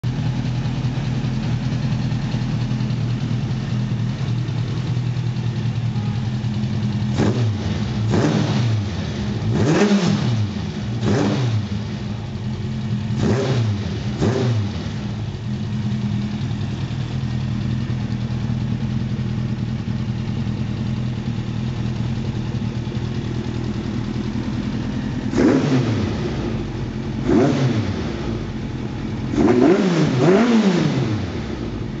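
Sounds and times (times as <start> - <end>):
motorcycle engine idling: 0.0 - 32.0
throttle blips revving engine: 7.1 - 12.0, 13.1 - 15.1, 25.0 - 28.6, 29.3 - 31.8.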